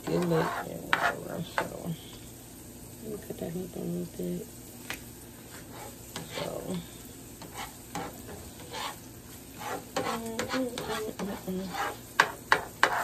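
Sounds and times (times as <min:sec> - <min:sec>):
spatula scraping and stirring: 0:00.0 - 0:02.2, 0:05.4 - 0:13.0
vegetables sizzling in a pan: 0:00.0 - 0:13.0.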